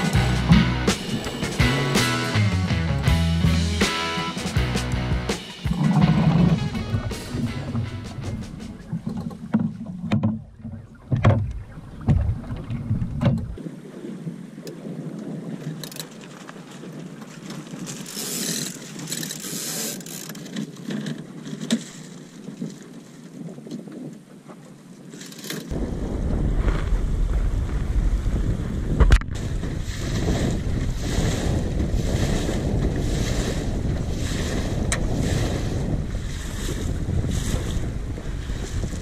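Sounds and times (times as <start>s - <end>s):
water lapping on hull: 0.0s - 2.5s, 3.4s - 25.7s, 28.0s - 39.0s
wind buffeting microphone: 4.6s - 18.1s, 25.7s - 39.0s
boat fittings knocking: 5.7s - 13.6s.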